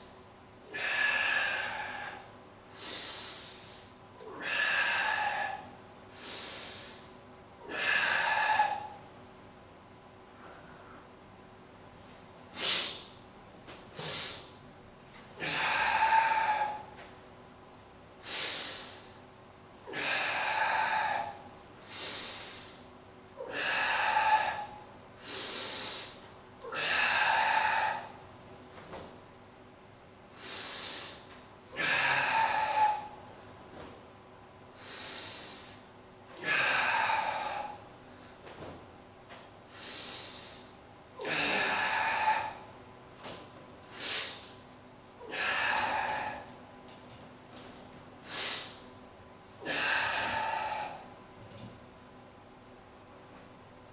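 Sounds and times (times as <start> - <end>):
man breathing forcefully: 0.7 - 9.1, 12.5 - 13.2, 13.9 - 14.6, 15.4 - 17.0, 18.2 - 19.2, 19.9 - 28.2, 30.3 - 33.2, 34.7 - 38.7, 39.7 - 44.5, 45.2 - 46.7, 48.2 - 48.9, 49.6 - 51.1.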